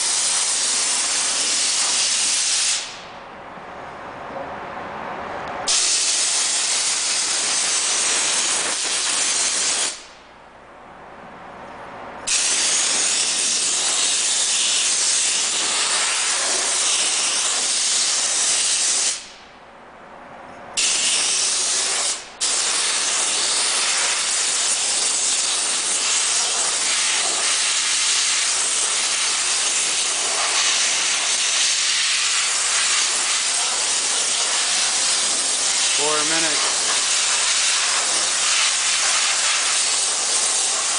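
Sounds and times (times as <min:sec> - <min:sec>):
steam cleaner hissing: 0:00.0 - 0:03.0, 0:05.7 - 0:10.1, 0:12.3 - 0:19.4, 0:20.8 - 0:40.9.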